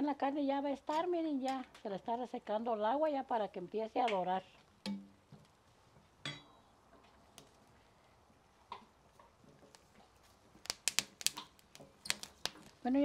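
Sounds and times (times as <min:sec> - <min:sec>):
plastic spoon clicking on clay pot: 0:10.6 - 0:12.7.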